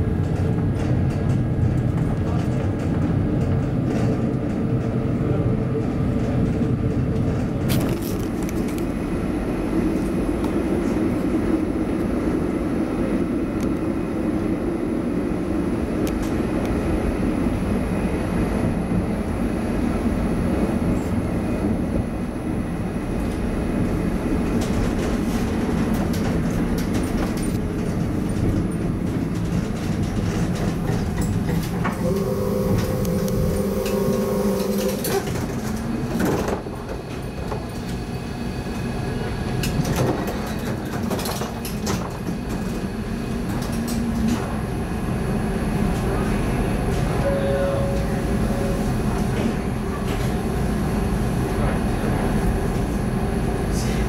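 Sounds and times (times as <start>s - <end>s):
tram wheels rumbling on rails: 0.0s - 54.0s
electric motor hum: 32.0s - 35.0s.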